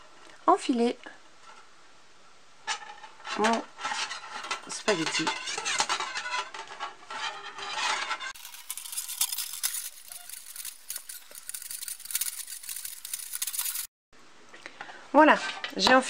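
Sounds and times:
metal wire coil clinking: 3.8 - 13.9
fabric cord rustling: 8.3 - 13.9
small wire ticks: 8.4 - 13.9.

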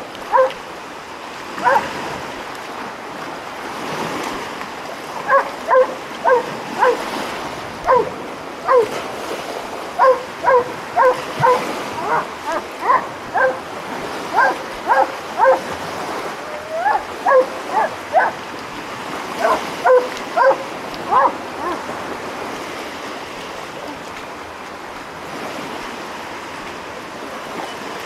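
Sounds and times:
waves washing against rocks: 0.0 - 28.0
dog barking: 0.3 - 0.6, 1.6 - 1.9, 5.3 - 7.0, 7.8 - 8.1, 8.7 - 9.0, 10.0 - 13.6, 14.3 - 15.7, 16.7 - 18.4, 19.4 - 21.8.

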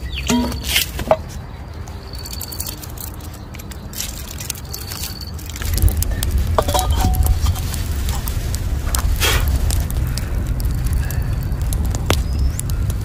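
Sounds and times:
wood fire burning: 1.8 - 13.0
low steady rumble: 5.6 - 13.0.

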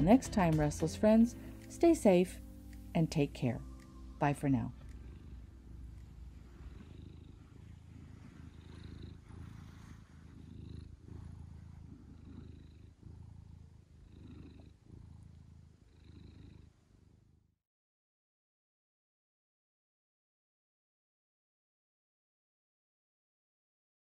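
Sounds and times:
cat purring: 0.0 - 17.6.

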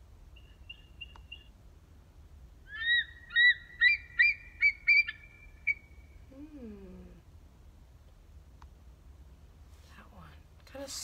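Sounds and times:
eagle piping call: 0.3 - 1.6, 2.6 - 6.3
faint bird chirps: 0.3 - 1.6, 2.6 - 7.2.

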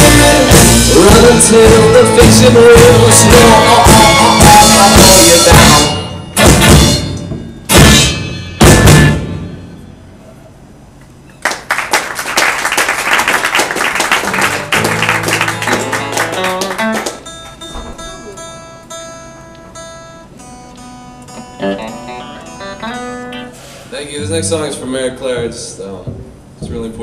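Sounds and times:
guitar strummed rapidly: 0.0 - 9.6, 14.2 - 23.6
rock band ending song: 0.0 - 9.6, 14.3 - 18.1
cymbal crashes: 5.6 - 10.0.

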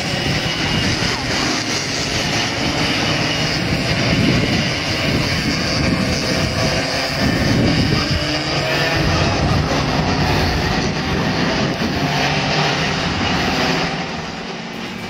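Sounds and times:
racing kart engines revving: 0.0 - 15.0.

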